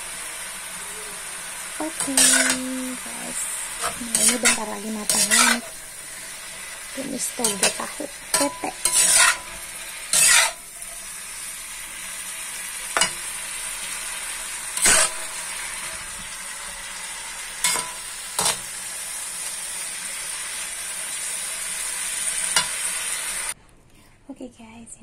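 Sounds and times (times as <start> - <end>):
food sizzling in a wok: 0.0 - 23.6
spatula scraping a pan: 2.0 - 2.7, 3.8 - 5.8, 7.4 - 10.8, 14.8 - 15.3.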